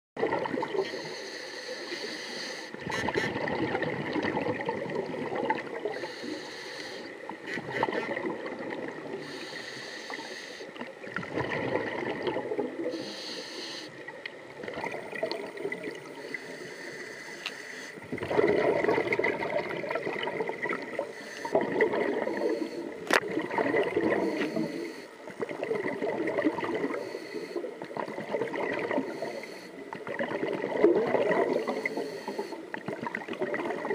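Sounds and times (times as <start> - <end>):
underwater wash: 0.2 - 33.9
regulator exhaust bubbling underwater: 18.1 - 24.5.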